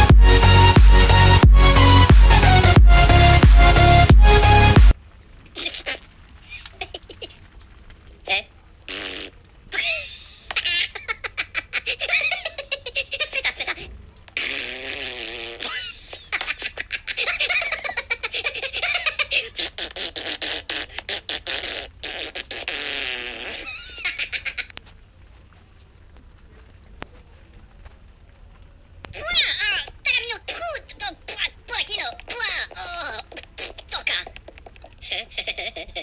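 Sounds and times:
high-pitched cartoon laughter: 5.6 - 7.4, 9.7 - 13.9, 15.6 - 21.8, 23.4 - 24.8, 32.3 - 36.0
cartoon fart noises: 8.9 - 10.1, 14.4 - 16.2, 19.5 - 24.7.

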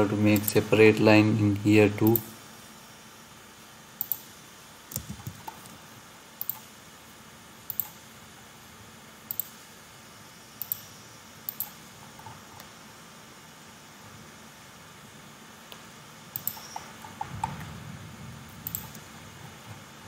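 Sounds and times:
computer mouse double clicks: 16.4 - 16.8, 18.6 - 19.0.

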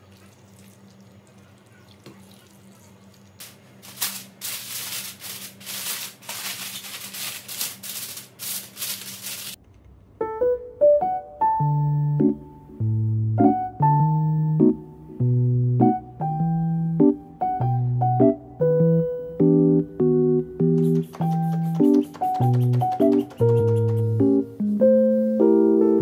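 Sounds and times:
scratchy rubbing strokes: 3.9 - 9.6, 20.8 - 24.2
electric piano music: 10.2 - 26.0.

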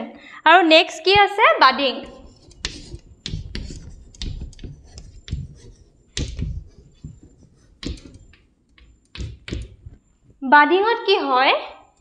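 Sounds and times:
writing taps and knocks: 2.0 - 10.4.

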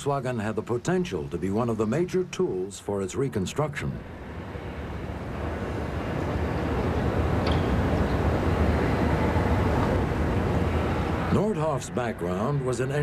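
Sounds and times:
factory machinery noise: 3.0 - 13.0.

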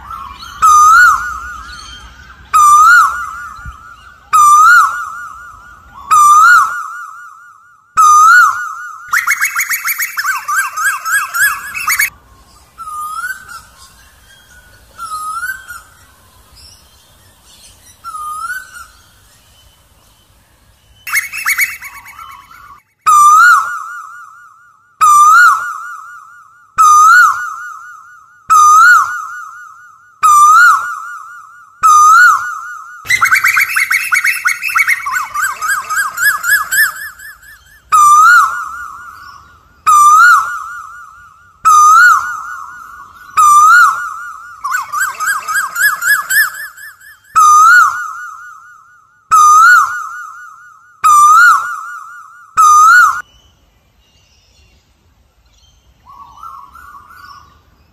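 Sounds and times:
bird whistling calls: 0.0 - 19.8, 20.9 - 24.4, 25.0 - 53.3, 56.0 - 57.6
koel calling: 8.0 - 12.1, 21.1 - 23.6, 33.0 - 39.0, 41.7 - 48.2.

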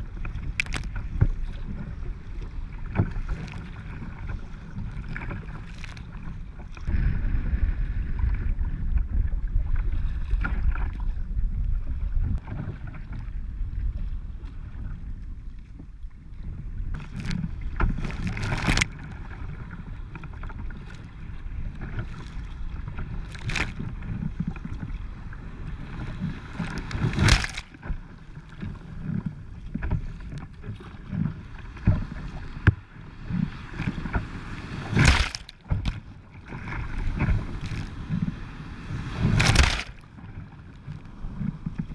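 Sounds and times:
waves splashing against kayak hull: 0.0 - 41.9
wind buffeting microphone: 6.9 - 19.0.

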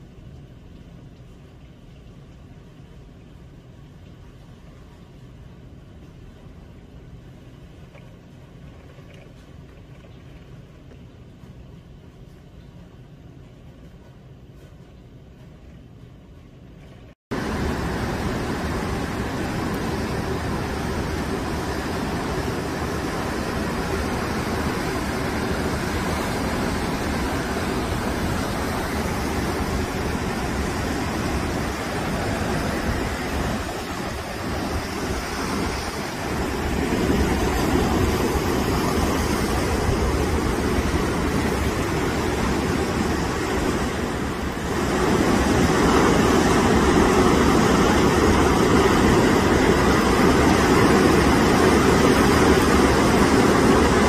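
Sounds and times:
surf crashing over a seawall: 17.3 - 54.0
wind gusting on microphone: 17.3 - 54.0.

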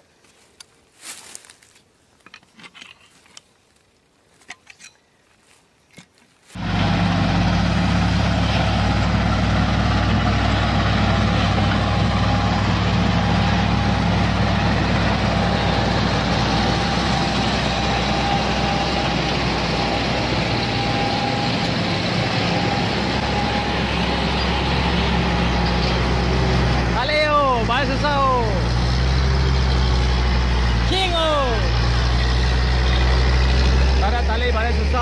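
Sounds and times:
heavy diesel engines running: 6.6 - 35.0.

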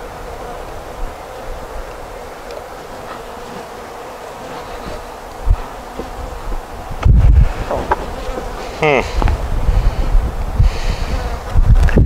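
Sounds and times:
bees buzzing: 0.0 - 11.7
short low thump: 7.0 - 9.4.

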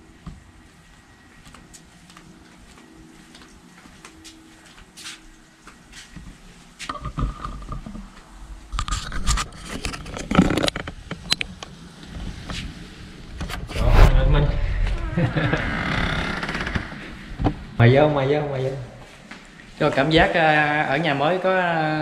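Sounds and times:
door squeak: 14.0 - 17.0.

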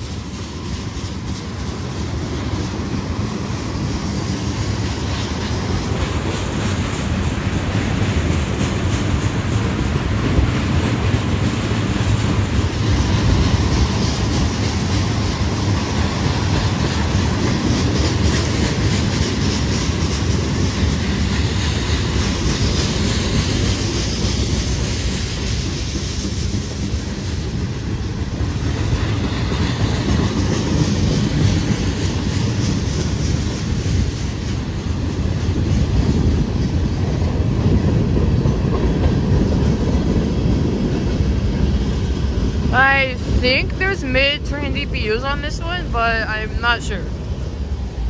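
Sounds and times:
steel wheels running on rails: 0.0 - 48.0.

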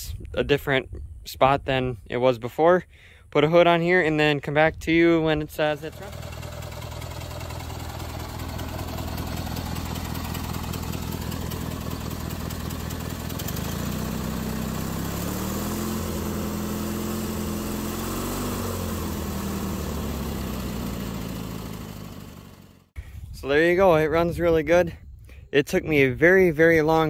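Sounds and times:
garden tractor engine running: 5.4 - 22.9.

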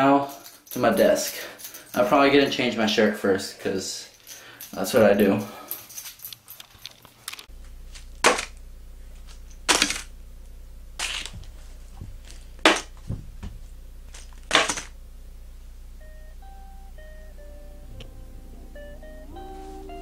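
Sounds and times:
steady low hum: 7.5 - 20.0
faint guitar music: 16.0 - 20.0.

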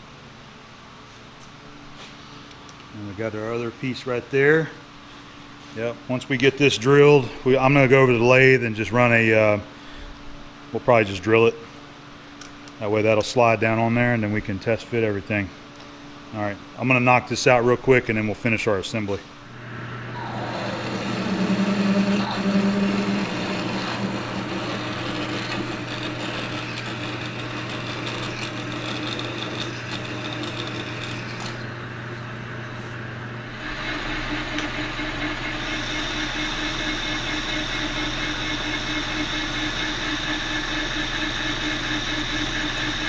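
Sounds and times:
lathe running with high whine: 19.4 - 43.0
lathe drilling workpiece: 19.5 - 31.8, 33.4 - 43.0.

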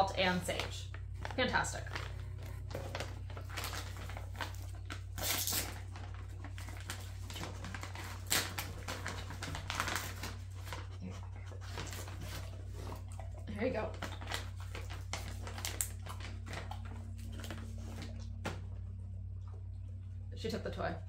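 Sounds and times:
steady low hum: 0.0 - 21.0
plastic pouch crinkling: 0.5 - 10.9, 13.9 - 18.4.

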